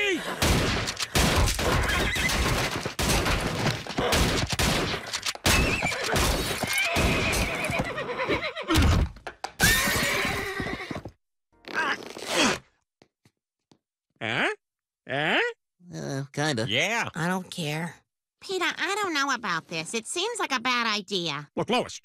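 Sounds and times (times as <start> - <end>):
shotgun blasts: 0.4 - 7.2
horse whinnying: 1.6 - 2.5, 5.5 - 8.9, 9.6 - 11.1.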